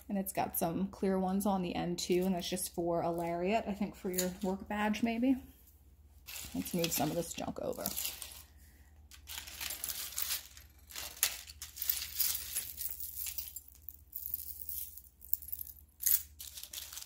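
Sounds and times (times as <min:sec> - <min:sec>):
jewelry jingling on countertop: 0:09.3 - 0:17.0.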